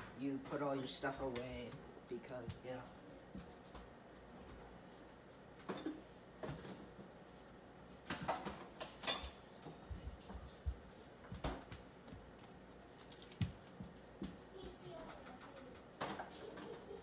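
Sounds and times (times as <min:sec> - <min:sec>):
kitchen things clattering: 0:08.1 - 0:09.4.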